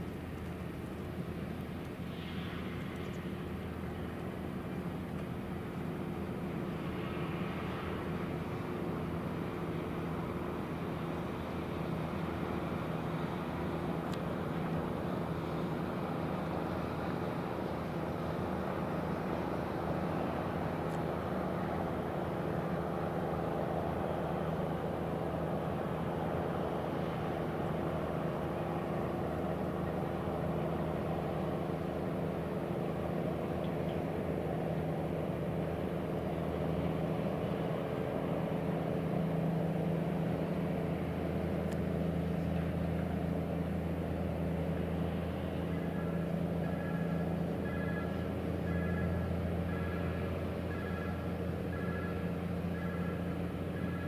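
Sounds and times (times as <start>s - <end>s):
diesel engine drone: 0.0s - 54.0s.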